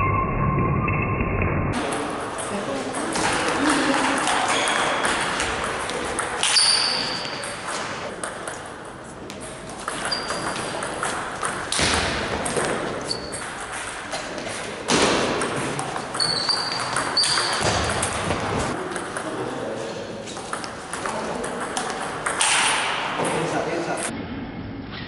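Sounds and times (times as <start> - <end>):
shoes squeaking on wooden floor: 16.2 - 17.6.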